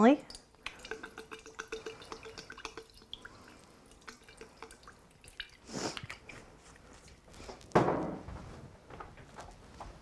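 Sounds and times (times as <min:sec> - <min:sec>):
sauce dripping into glass jar: 0:00.0 - 0:06.5.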